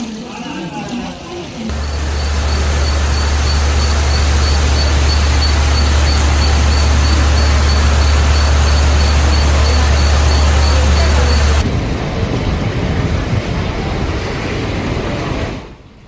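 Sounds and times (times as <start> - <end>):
water rushing with deep rumble: 0.8 - 16.0
faint high-pitched beep: 1.7 - 11.6.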